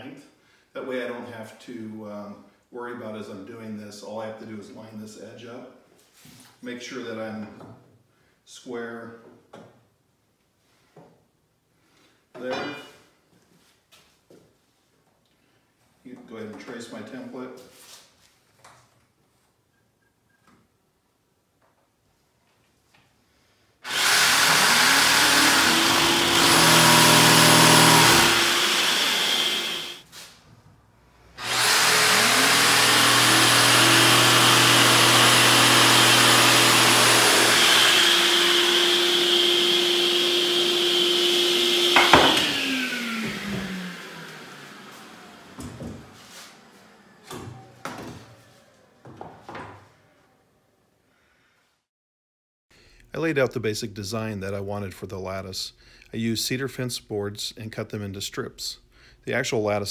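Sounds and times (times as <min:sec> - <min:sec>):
jigsaw cutting wood: 0:23.8 - 0:30.0, 0:31.4 - 0:46.2
shop vacuum motor: 0:23.9 - 0:30.0, 0:31.4 - 0:49.2
wood knocks: 0:42.0 - 0:42.6.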